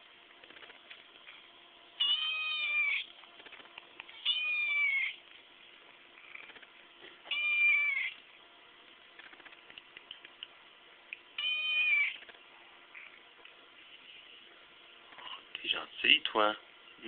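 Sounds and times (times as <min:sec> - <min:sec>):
kitten meowing: 0:02.0 - 0:03.1, 0:04.2 - 0:05.2, 0:07.3 - 0:08.2, 0:11.4 - 0:12.2.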